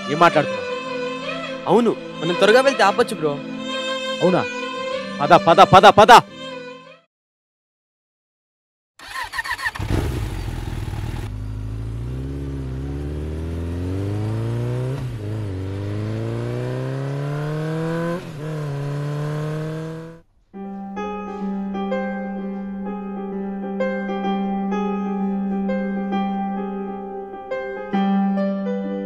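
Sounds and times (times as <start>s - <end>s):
motorcycle engine revving: 9.0s - 20.2s
piano music: 20.6s - 29.0s.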